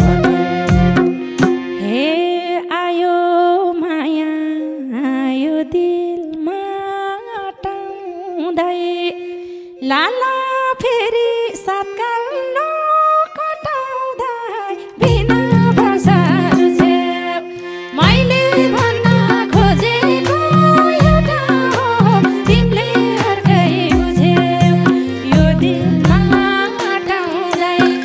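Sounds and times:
held drone note: 0.0 - 2.1, 18.0 - 27.2
sliding wavering folk melody: 0.0 - 28.0.

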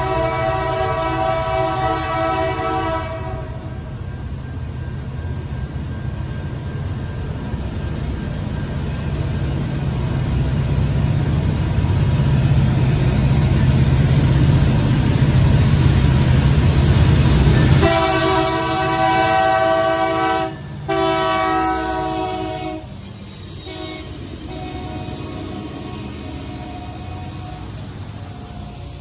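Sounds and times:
train air horn blast: 0.0 - 3.8, 17.6 - 23.0, 23.6 - 28.9
diesel locomotive engine rumble: 0.0 - 29.0.

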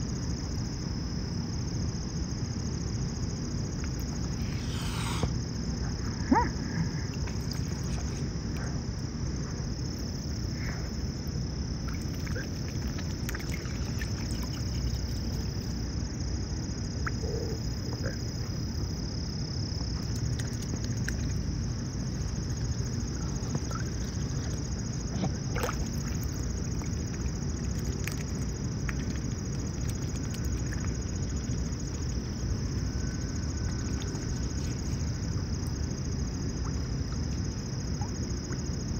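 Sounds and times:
high-pitched insect chorus: 0.0 - 38.9
low background rumble: 0.0 - 38.9
swans splashing water: 7.1 - 8.3, 11.8 - 15.9, 19.8 - 38.2.

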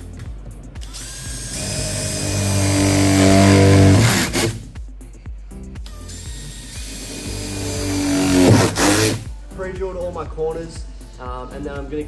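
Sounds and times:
cordless drill whining through metal: 0.8 - 4.6, 6.1 - 9.2.

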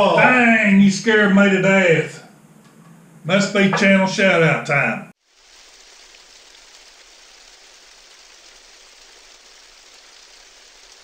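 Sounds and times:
steady water hiss: 5.2 - 11.0.

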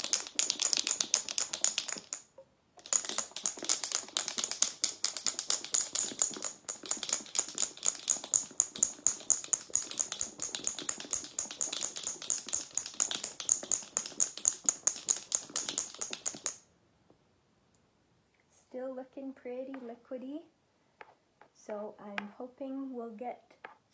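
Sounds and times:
marbles rattling in a shaken jar: 0.0 - 16.6.

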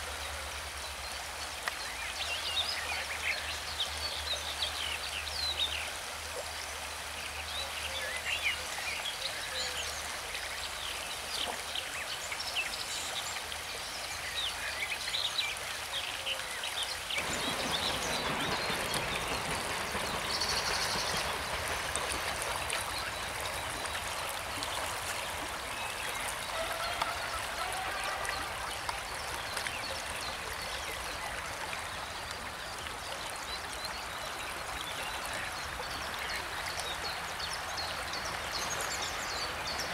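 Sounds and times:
river water rushing: 12.0 - 33.4.

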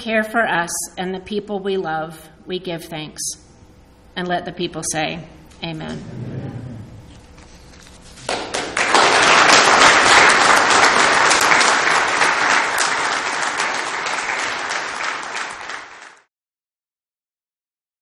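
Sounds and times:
audience applauding: 8.2 - 16.3.

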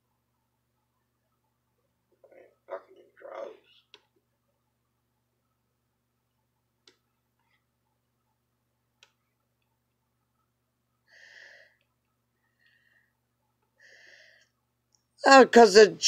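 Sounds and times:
faint clicks: 9.0 - 9.8.

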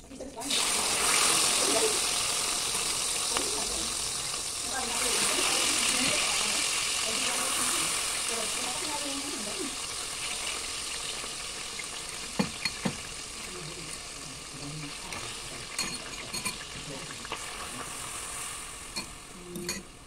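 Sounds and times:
meat sizzling in oil: 0.0 - 20.0
metal tongs clicking on pan: 19.0 - 19.9.

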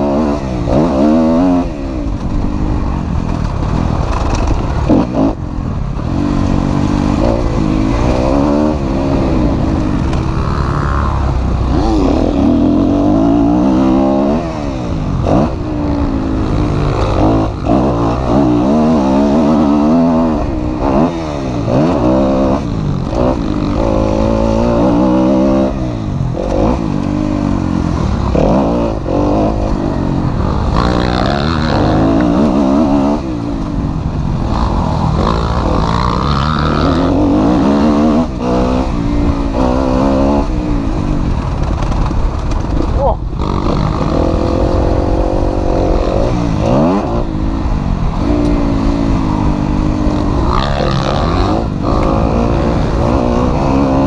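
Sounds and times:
low rushing noise: 0.0 - 54.0
motorcycle engine revving: 0.0 - 54.0.

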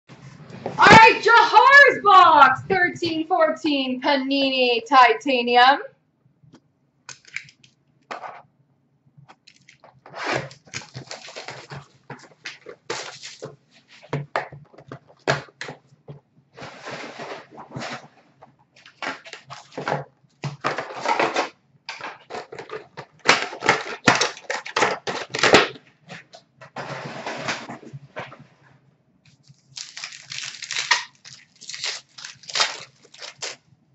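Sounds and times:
cardboard tearing and rustling: 9.5 - 13.9, 18.8 - 25.8, 29.4 - 33.6.

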